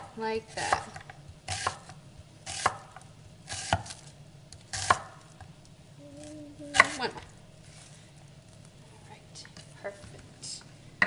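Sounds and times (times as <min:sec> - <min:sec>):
knife slicing onion on board: 0:00.0 - 0:04.0, 0:04.7 - 0:05.2, 0:06.7 - 0:07.1.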